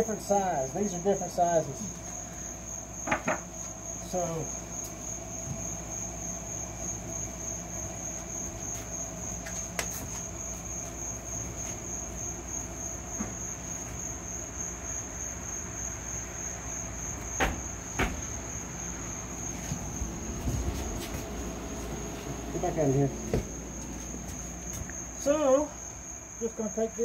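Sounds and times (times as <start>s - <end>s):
cricket trilling: 0.0s - 27.0s
low background hum: 0.0s - 27.0s
door knocking shut: 3.0s - 3.4s, 17.3s - 18.4s, 23.3s - 23.6s.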